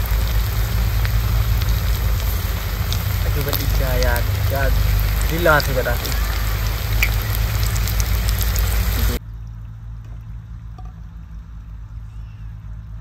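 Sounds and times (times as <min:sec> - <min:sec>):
food sizzling in hot oil: 0:00.0 - 0:09.2.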